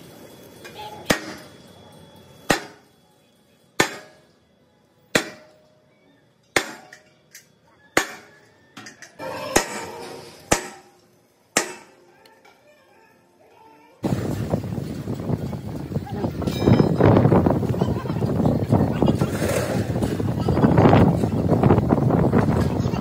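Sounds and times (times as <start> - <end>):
sledgehammer striking steel plate: 1.1 - 1.4, 2.5 - 2.8, 3.8 - 4.3, 5.1 - 5.6, 6.5 - 7.1, 9.2 - 10.9, 11.6 - 12.0.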